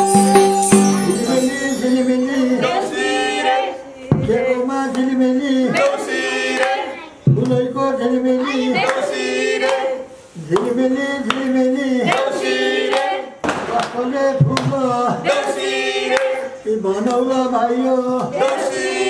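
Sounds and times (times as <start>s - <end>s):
people clapping along: 0.0s - 2.4s, 5.7s - 7.7s, 8.8s - 11.5s, 12.1s - 16.4s, 18.2s - 19.0s
man singing into a microphone: 10.4s - 12.1s.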